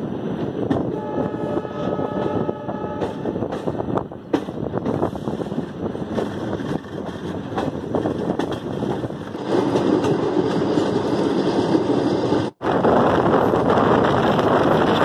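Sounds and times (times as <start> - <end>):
train wheels rumbling over rail joints: 0.0 - 15.0.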